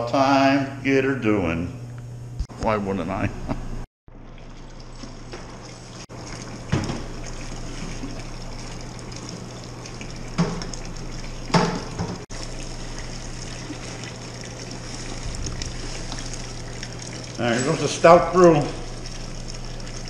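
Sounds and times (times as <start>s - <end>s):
hot water trickling: 4.1s - 20.0s
low hum: 12.3s - 20.0s.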